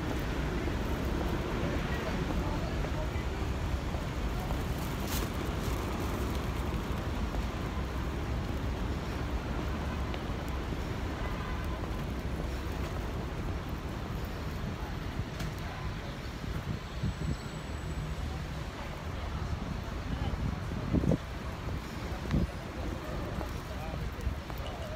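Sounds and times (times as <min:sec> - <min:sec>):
city street traffic: 0:00.0 - 0:24.9
wind rumble on microphone: 0:19.2 - 0:24.9.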